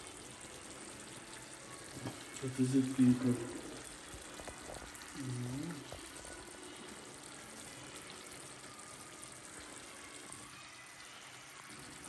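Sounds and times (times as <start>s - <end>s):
faint hiss of gas stove: 0.0s - 12.0s.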